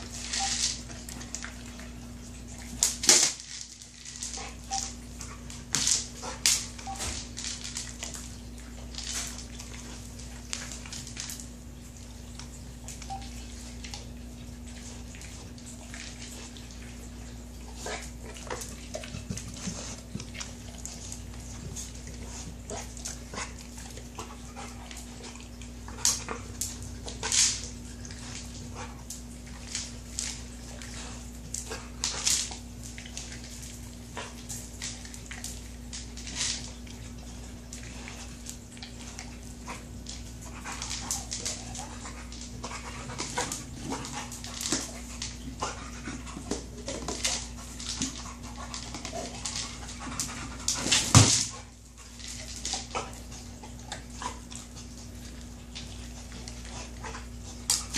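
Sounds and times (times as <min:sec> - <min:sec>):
dog eating kibble: 0:00.0 - 0:57.9
kibble rattling inside toy: 0:02.6 - 0:11.5.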